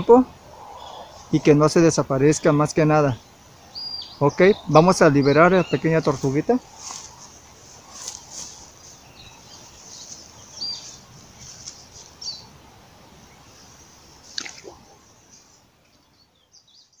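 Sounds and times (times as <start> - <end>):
bird chirps: 2.4 - 12.6
splash in a pond: 14.2 - 15.0.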